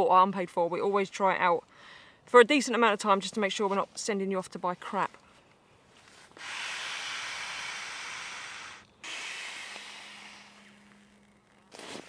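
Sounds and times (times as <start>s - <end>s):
breath hissing into a valve: 6.3s - 11.0s.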